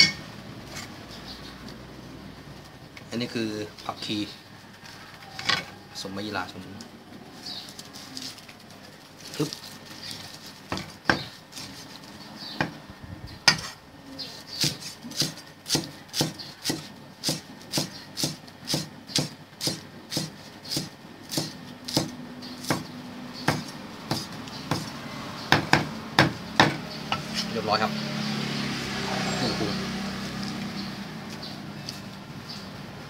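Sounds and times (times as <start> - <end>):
cleaver chopping herbs on wood: 9.4 - 12.8, 14.4 - 27.6.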